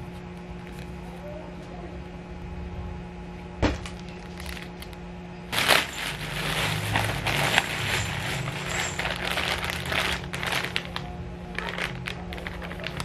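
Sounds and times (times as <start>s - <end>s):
plastic packaging crinkling: 3.7s - 13.0s.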